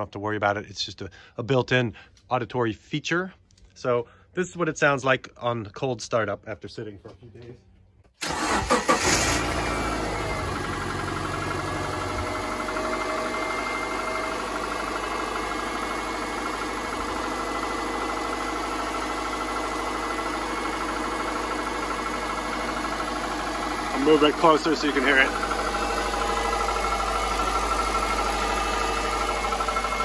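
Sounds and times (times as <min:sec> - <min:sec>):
car engine idling: 0:08.2 - 0:30.0
engine clatter: 0:08.2 - 0:30.0.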